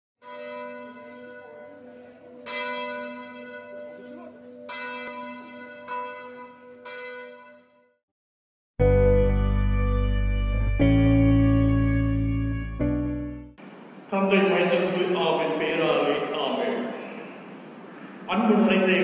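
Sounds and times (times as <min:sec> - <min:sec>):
church bell ringing: 0:00.2 - 0:08.0.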